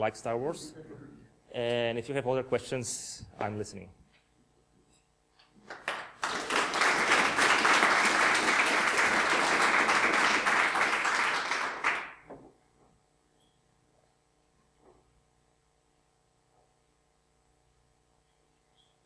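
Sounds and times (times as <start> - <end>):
audience applauding: 5.7 - 12.3.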